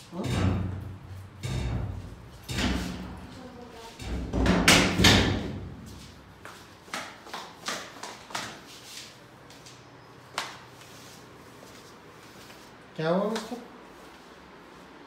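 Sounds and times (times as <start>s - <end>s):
footsteps on tiled stairs: 5.7s - 15.0s.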